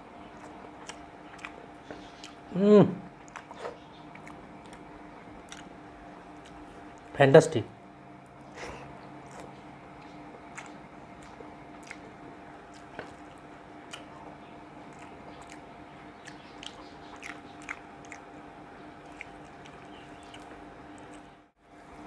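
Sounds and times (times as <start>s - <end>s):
person chewing rice: 0.2s - 2.5s, 3.1s - 7.1s, 8.3s - 21.4s
wet mouth clicks and smacks: 5.5s - 5.7s.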